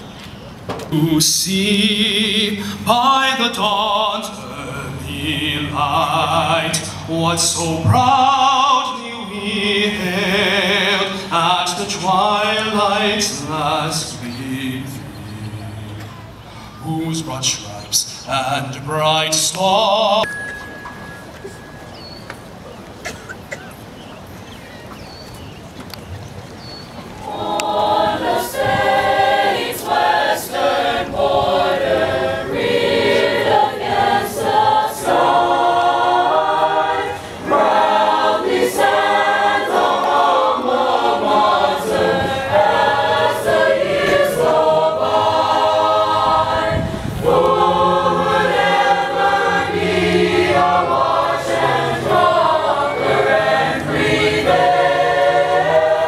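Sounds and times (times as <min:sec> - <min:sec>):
mixed choir singing: 0:01.0 - 0:16.2, 0:27.2 - 0:56.0.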